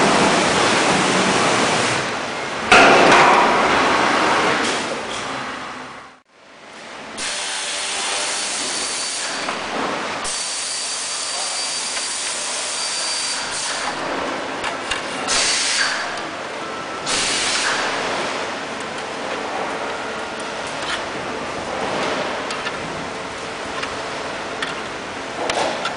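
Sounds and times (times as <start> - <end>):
hissing machine noise: 7.2 - 25.9.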